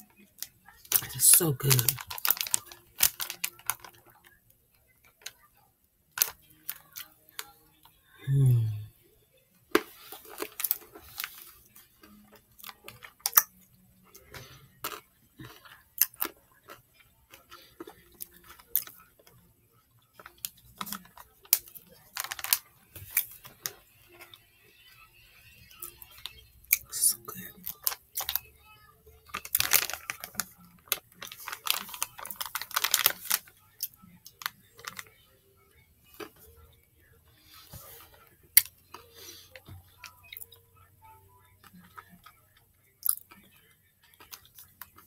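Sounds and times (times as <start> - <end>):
chewing chocolate with crunching: 0.0 - 4.4, 6.1 - 8.0, 9.7 - 25.0, 29.2 - 40.6, 41.4 - 45.0
person humming: 8.2 - 8.9.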